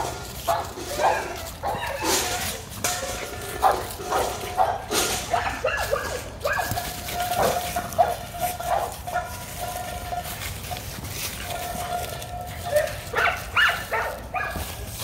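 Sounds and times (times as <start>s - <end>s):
puppy yipping and barking: 0.0s - 2.6s, 3.6s - 14.8s
dry leaves crackling: 0.0s - 15.0s
puppy whining: 0.9s - 2.7s, 5.3s - 14.6s.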